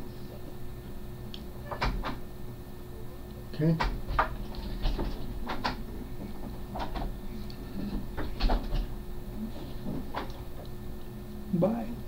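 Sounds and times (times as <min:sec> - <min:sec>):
office chair creaks and knocks: 0:03.8 - 0:07.2, 0:07.9 - 0:08.9.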